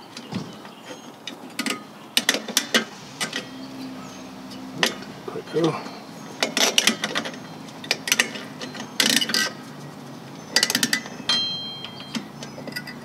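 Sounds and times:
metallic ring: 2.6s - 9.8s, 10.4s - 13.0s.

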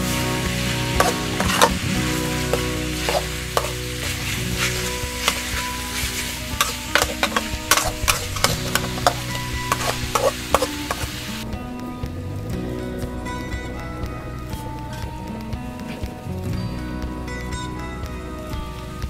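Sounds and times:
food sizzling: 0.0s - 19.0s
metal spatula clacking on wok: 1.0s - 1.8s, 2.5s - 11.2s.

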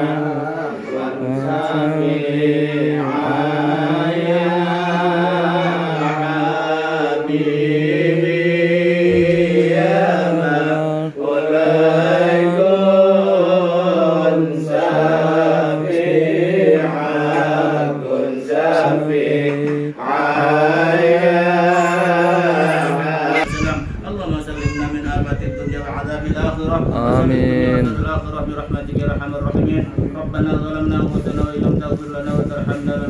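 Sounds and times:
man chanting a prayer: 0.0s - 33.0s.

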